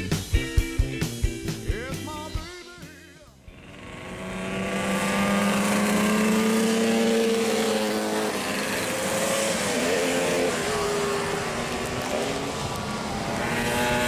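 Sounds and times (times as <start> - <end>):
racing motorcycles passing at high revs: 3.5 - 14.0.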